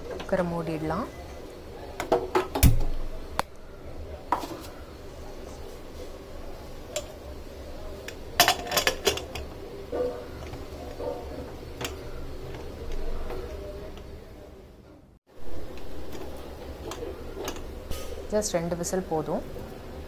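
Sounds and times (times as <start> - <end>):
pressure cooker lid clanking: 8.4 - 9.4.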